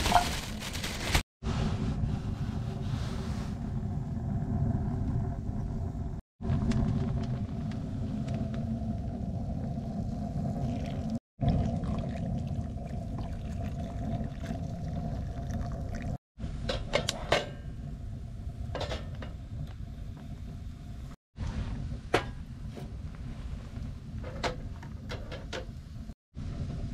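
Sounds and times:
low rumble: 0.3s - 12.0s.

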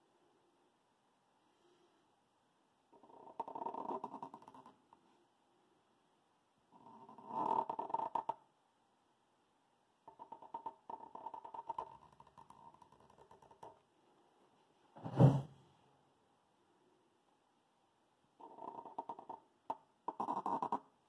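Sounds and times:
brief thump: 15.0s - 15.6s.

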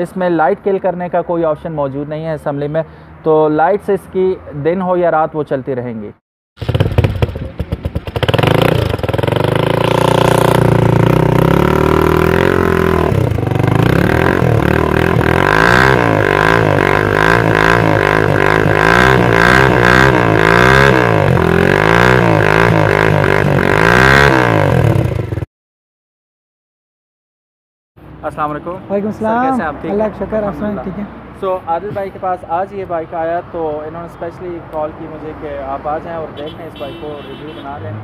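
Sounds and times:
motorcycle engine idling and revving: 6.6s - 25.5s.

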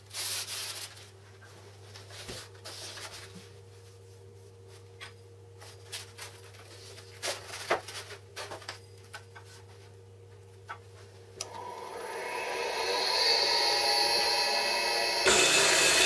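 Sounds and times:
rough scraping noise: 12.0s - 16.0s.

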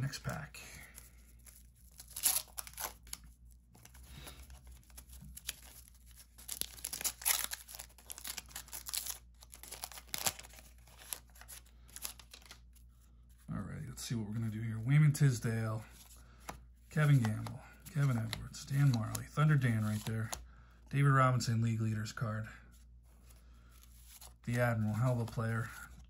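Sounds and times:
paper wrapper tearing and crinkling: 1.3s - 12.7s.

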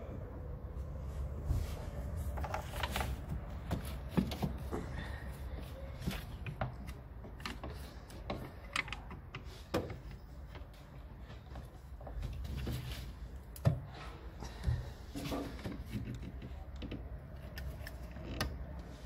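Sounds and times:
clicks and knocks of plastic fittings: 6.0s - 10.8s, 15.3s - 18.9s.

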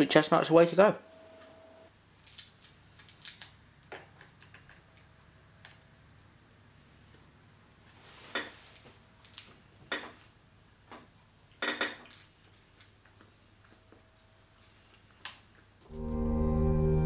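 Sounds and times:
chestnut shells cracking: 2.1s - 5.8s, 8.6s - 10.0s, 11.6s - 13.2s.

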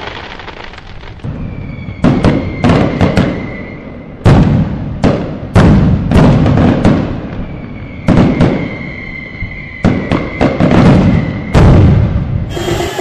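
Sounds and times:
fireworks bangs: 0.0s - 13.0s
high firework whistle: 1.3s - 4.2s, 7.3s - 11.8s, 12.4s - 13.0s.

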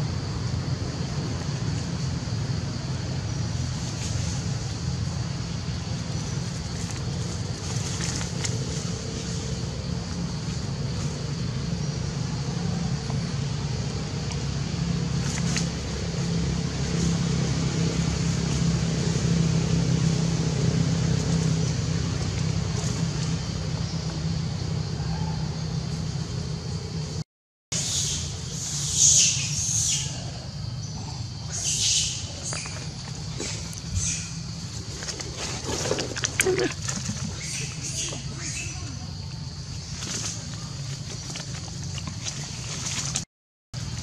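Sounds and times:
low rumble and hum: 0.0s - 27.2s.

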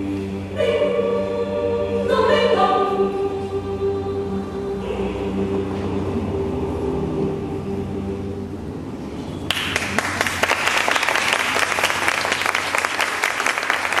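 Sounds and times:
choir and strings chord: 0.0s - 9.1s
audience applause: 9.5s - 14.0s.

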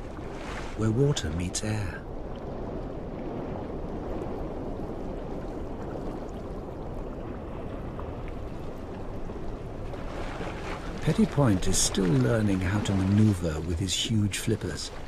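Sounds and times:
underwater rushing of seawater: 0.0s - 15.0s.

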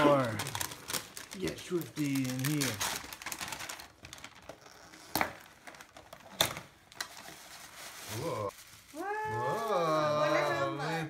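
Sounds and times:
wrapping paper rustling: 0.0s - 10.2s
person exclaiming: 8.1s - 11.0s.

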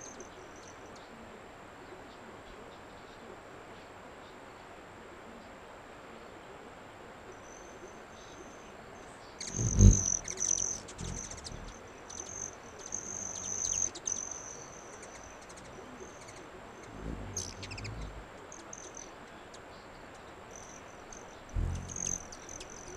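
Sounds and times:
hummingbird buzzing trills: 9.4s - 22.9s
hummingbird chip notes: 9.4s - 22.9s
hummingbird wing hums: 9.4s - 22.9s.

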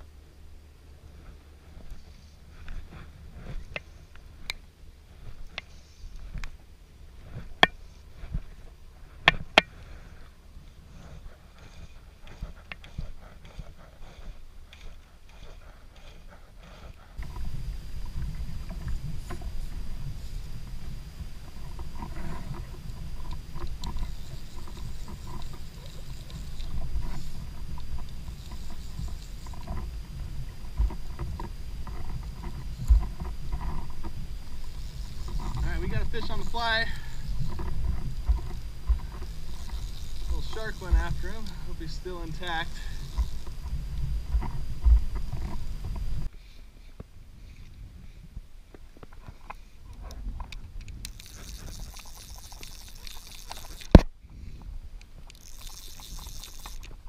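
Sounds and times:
wind and water rumble: 0.0s - 57.0s
fishing gear clicks and taps: 1.8s - 4.6s, 11.0s - 46.3s, 49.0s - 54.1s, 55.0s - 57.0s.

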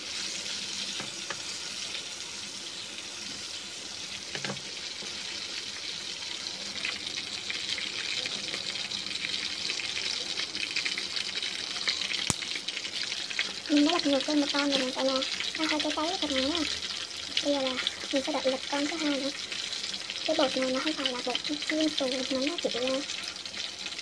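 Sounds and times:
food sizzling in oil: 0.0s - 24.0s
sharp oil pop: 12.2s - 12.4s.

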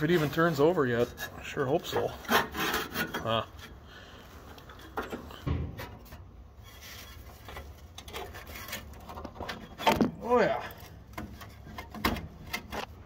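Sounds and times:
hand rubbing and scraping: 0.0s - 13.0s
dull clunk: 5.4s - 6.0s.

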